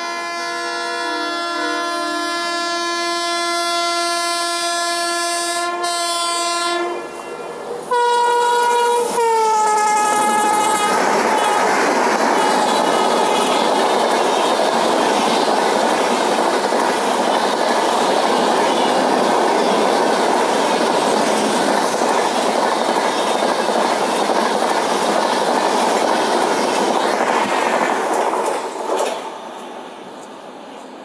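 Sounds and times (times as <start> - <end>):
train wheels rushing and rattling: 7.0 - 31.0.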